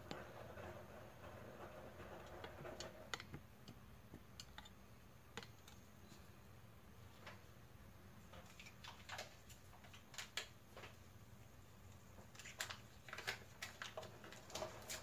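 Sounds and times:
heating pot ticking and popping: 0:00.0 - 0:05.7.

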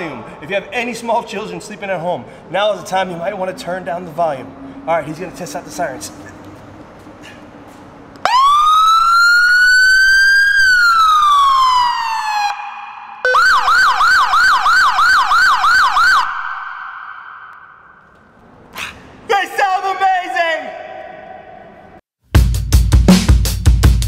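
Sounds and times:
police siren wailing: 0:08.2 - 0:17.6
police siren yelping: 0:08.2 - 0:17.6.

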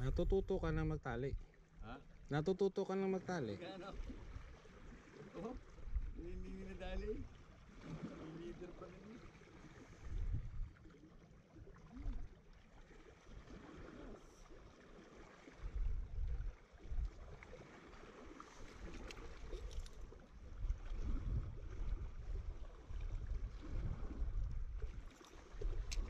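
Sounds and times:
wind buffeting microphone: 0:00.0 - 0:01.4, 0:05.7 - 0:07.4, 0:10.0 - 0:10.8, 0:15.6 - 0:17.4, 0:18.8 - 0:26.0
faint sea water wash: 0:00.0 - 0:26.0.

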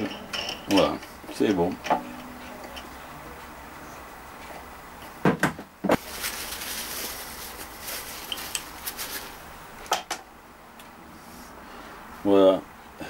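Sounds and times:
knocks: 0:05.2 - 0:06.0
paper towel rubbing on thread: 0:06.0 - 0:09.4.

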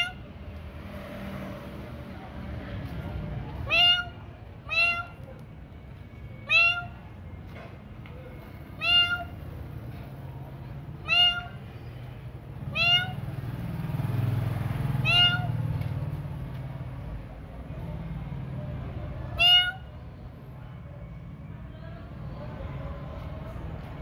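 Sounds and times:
cat meowing: 0:00.0 - 0:00.3, 0:03.6 - 0:05.4, 0:06.4 - 0:07.2, 0:08.7 - 0:09.4, 0:11.0 - 0:12.0, 0:12.6 - 0:13.3, 0:15.0 - 0:15.8, 0:19.3 - 0:20.0.

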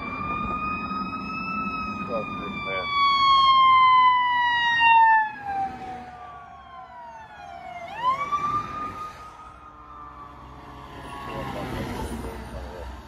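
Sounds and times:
emergency siren wailing: 0:00.0 - 0:13.0.

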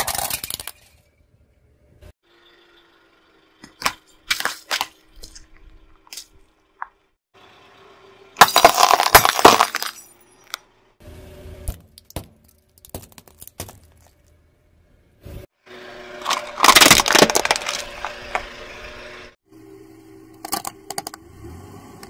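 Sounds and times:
tyre crushing brittle objects: 0:00.0 - 0:01.0, 0:03.6 - 0:06.4, 0:08.4 - 0:10.6, 0:11.7 - 0:14.3, 0:16.2 - 0:18.5
glass shattering under tyre: 0:08.4 - 0:10.6, 0:16.2 - 0:18.4.

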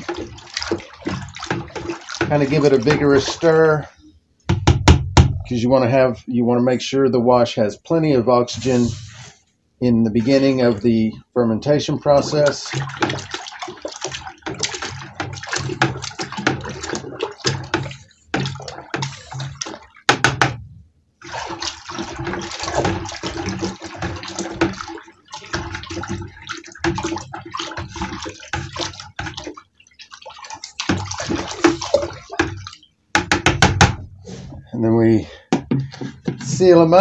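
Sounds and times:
liquid sloshing and churning: 0:00.0 - 0:04.1, 0:10.1 - 0:34.7, 0:35.4 - 0:37.0
sharp knocks: 0:04.5 - 0:05.4, 0:17.5 - 0:20.6, 0:33.1 - 0:34.1.

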